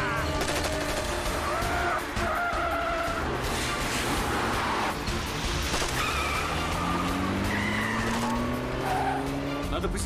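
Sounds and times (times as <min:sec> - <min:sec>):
dramatic background music: 0:00.0 - 0:10.0
car engines racing: 0:01.2 - 0:10.0
tyres squealing: 0:06.0 - 0:09.3.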